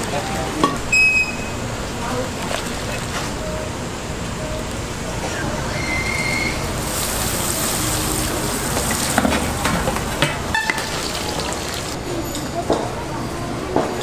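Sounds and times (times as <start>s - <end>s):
food sizzling in hot oil: 6.7s - 9.2s, 10.8s - 12.0s.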